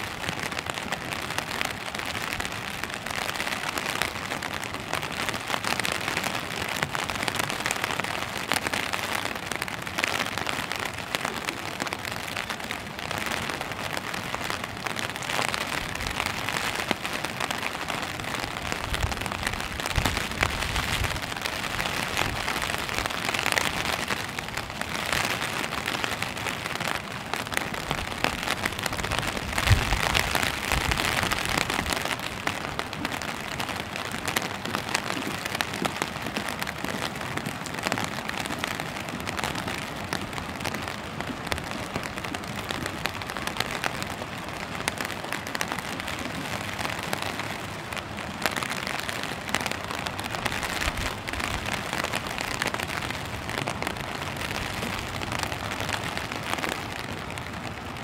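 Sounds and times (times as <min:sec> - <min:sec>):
rain falling on stone paving: 0:00.0 - 0:58.0.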